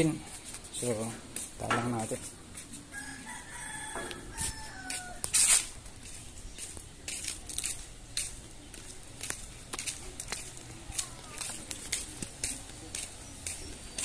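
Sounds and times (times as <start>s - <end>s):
rooster crowing: 2.9s - 5.4s.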